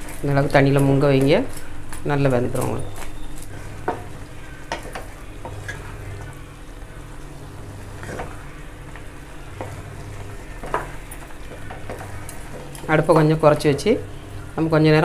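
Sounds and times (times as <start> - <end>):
bubbling sizzle: 0.0 - 15.0
spatula knocking and scraping pan: 3.4 - 6.3, 7.9 - 13.9.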